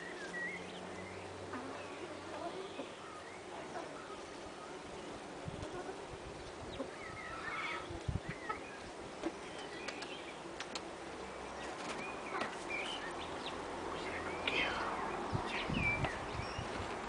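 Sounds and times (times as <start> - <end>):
bird chirps and calls: 6.3 - 10.4, 11.6 - 16.8.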